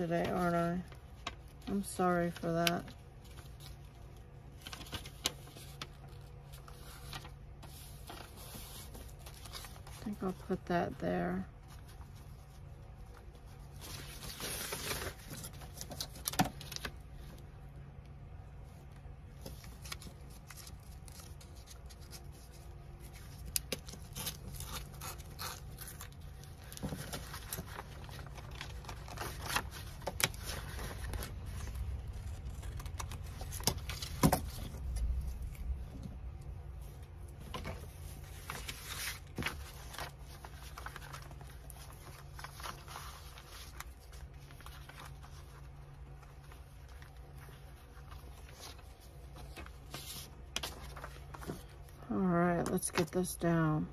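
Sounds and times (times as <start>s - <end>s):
paper rustling and sliding: 3.2s - 10.1s, 36.8s - 51.9s.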